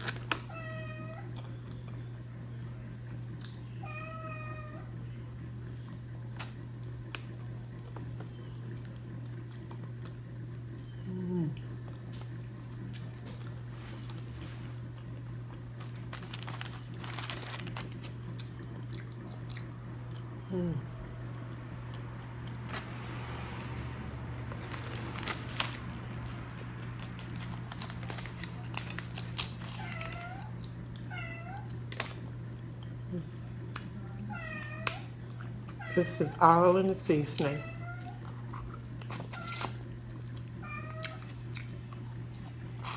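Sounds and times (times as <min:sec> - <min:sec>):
steady low hum: 0:00.0 - 0:42.9
cat meowing: 0:00.5 - 0:01.3, 0:03.8 - 0:04.9, 0:34.3 - 0:35.1.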